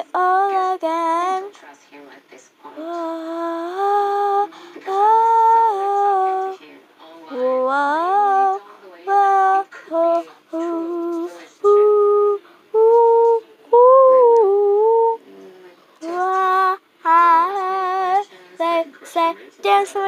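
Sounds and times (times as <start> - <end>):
girl singing unaccompanied: 0.0 - 1.7, 2.7 - 6.6, 7.2 - 20.0.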